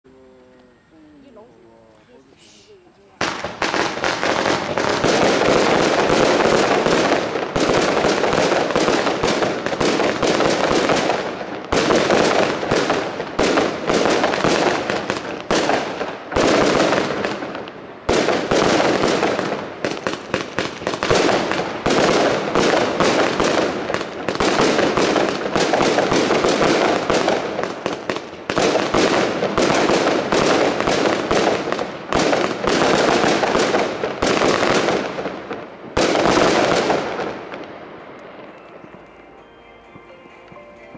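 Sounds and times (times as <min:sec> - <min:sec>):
fireworks popping and bursting: 0:03.1 - 0:39.2.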